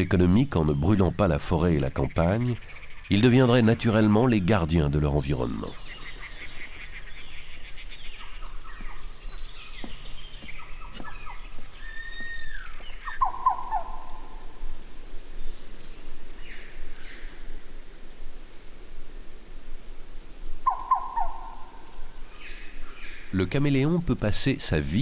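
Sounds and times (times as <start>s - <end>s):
chirps: 0.0s - 14.5s, 20.7s - 23.9s
high insect drone: 0.0s - 25.0s
pulsing insect trill: 0.0s - 25.0s
short bird calls: 5.4s - 14.6s, 20.6s - 23.4s.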